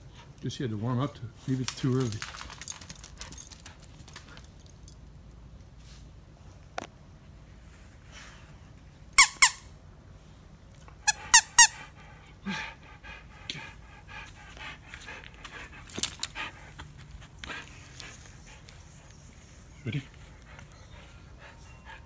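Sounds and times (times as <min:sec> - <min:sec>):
dog toy squeaking: 0:09.2 - 0:09.6, 0:11.1 - 0:11.8.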